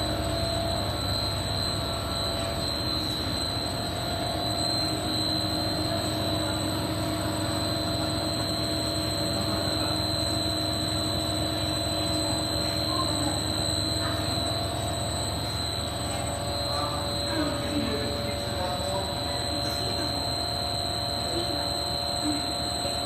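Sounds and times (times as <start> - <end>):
extrusion machine whining: 0.0 - 23.0.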